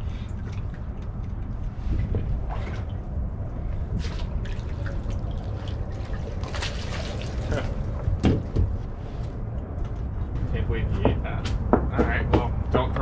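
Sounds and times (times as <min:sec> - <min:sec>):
water splashing and dripping: 0:00.0 - 0:08.7
steady low rumble: 0:00.0 - 0:13.0
short sharp splashes: 0:03.9 - 0:08.0.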